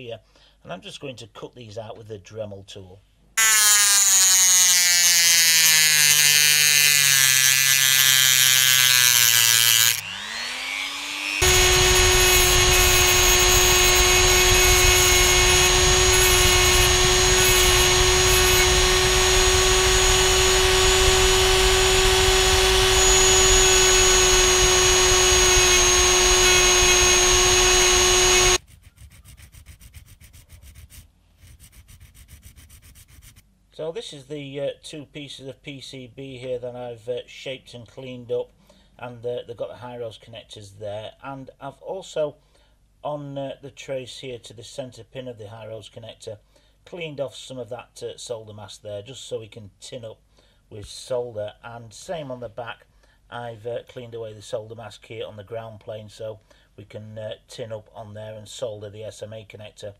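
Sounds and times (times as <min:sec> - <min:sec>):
rotary tool cutting circuit board: 0:03.4 - 0:28.6.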